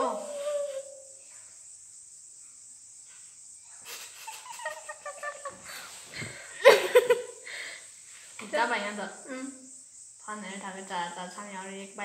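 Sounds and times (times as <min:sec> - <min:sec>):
faint high-pitched whine: 0:00.0 - 0:12.0
children giggling: 0:03.8 - 0:07.5.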